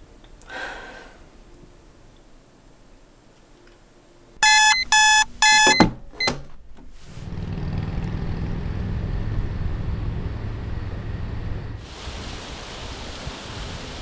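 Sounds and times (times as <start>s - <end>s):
alarm clock beeps: 4.4s - 6.3s
low outdoor background rumble: 6.4s - 11.9s.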